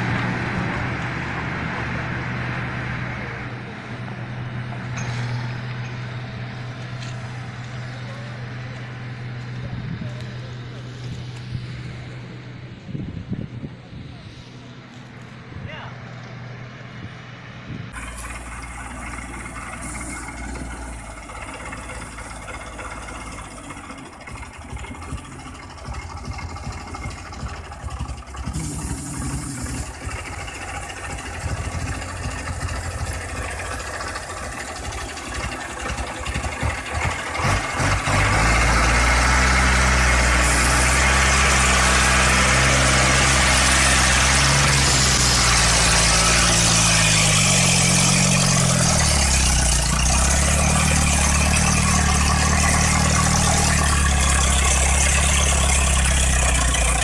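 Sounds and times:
truck engine labouring: 0.0s - 57.0s.

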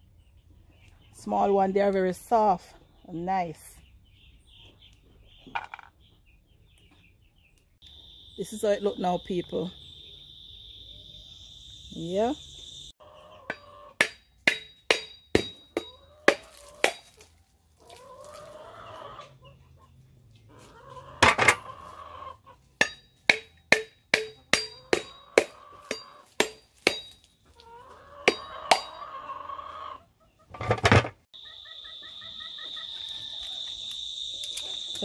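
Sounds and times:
chicken clucking: 13.0s - 14.0s, 17.8s - 22.8s, 25.5s - 26.3s, 27.6s - 30.6s, 31.4s - 33.7s
machete striking coconut: 13.5s - 17.3s, 22.8s - 27.3s, 28.3s - 29.0s.

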